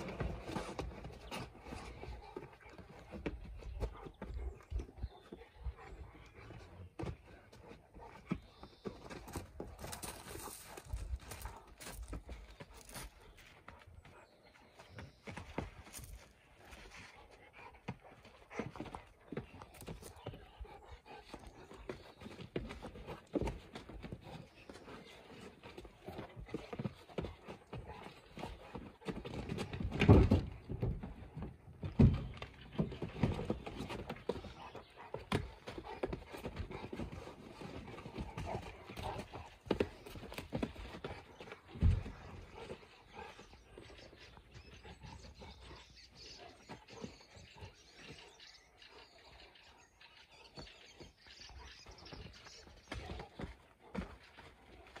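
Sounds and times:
scuffling of paws: 0:00.0 - 0:30.0
dogs play growling: 0:32.9 - 0:48.4.

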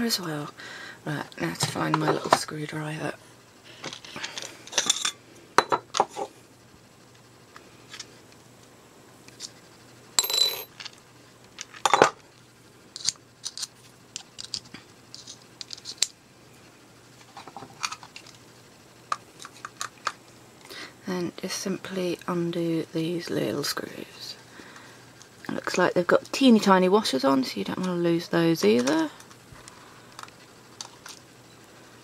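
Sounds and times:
metal bits clinking: 0:10.2 - 0:11.0.

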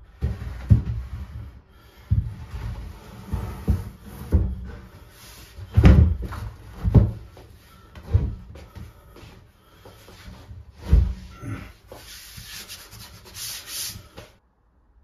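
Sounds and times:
worktop scraping against worktop: 0:00.2 - 0:07.1.

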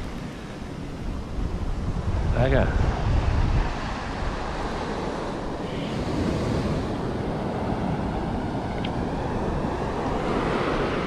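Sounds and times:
waves washing on sand: 0:00.0 - 0:11.0
wind buffeting microphone: 0:00.0 - 0:11.0.

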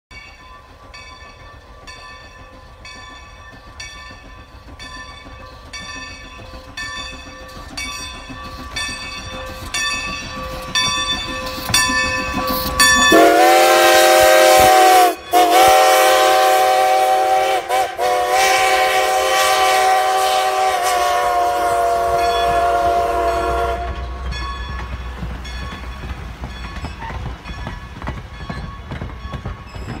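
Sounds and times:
coaches rumbling on rails: 0:00.1 - 0:30.0
steam locomotive chuffing: 0:00.2 - 0:30.0
steam whistle: 0:13.1 - 0:24.2.

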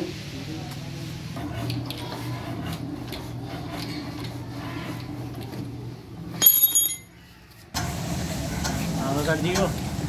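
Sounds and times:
diesel engine hand-cranked: 0:01.3 - 0:06.8, 0:07.8 - 0:10.0
metallic clink of crank handle: 0:06.4 - 0:07.1.

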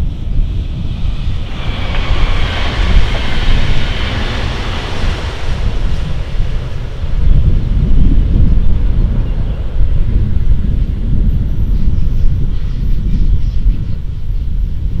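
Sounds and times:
train passing at speed: 0:00.0 - 0:12.0
wind rumble on microphone: 0:00.0 - 0:15.0.

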